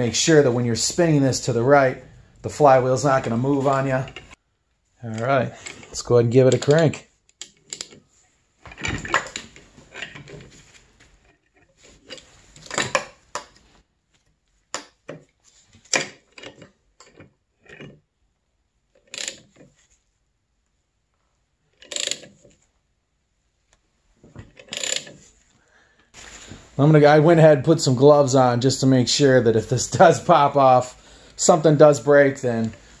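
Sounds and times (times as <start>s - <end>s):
metallic clicks and clanks of wrench: 5.1s - 8.0s, 11.6s - 13.6s, 19.0s - 19.7s, 21.8s - 22.5s, 24.5s - 25.2s.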